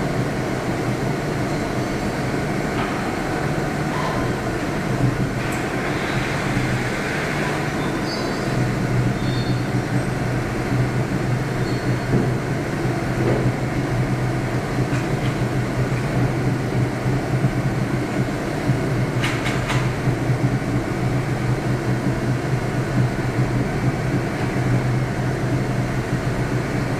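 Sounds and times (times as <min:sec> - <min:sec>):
milling machine spindle drone: 0:00.1 - 0:14.9.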